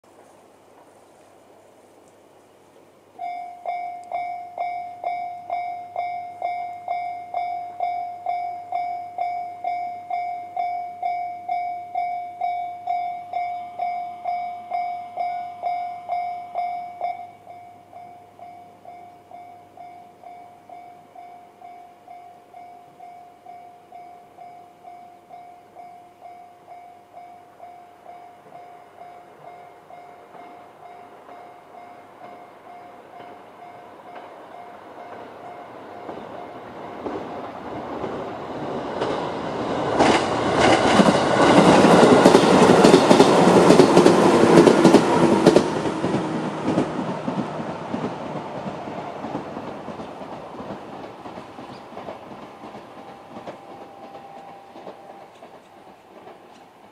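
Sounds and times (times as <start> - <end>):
electric train passing: 0.1 - 56.9
level-crossing warning bell: 3.2 - 56.5
wheels clattering over rail joints: 30.2 - 56.9.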